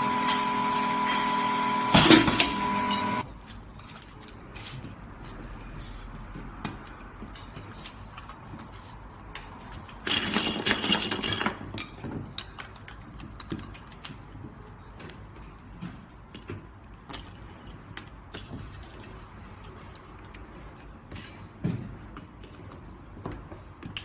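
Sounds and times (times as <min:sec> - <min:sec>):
plastic parts clicking and knocking: 0:09.4 - 0:15.5.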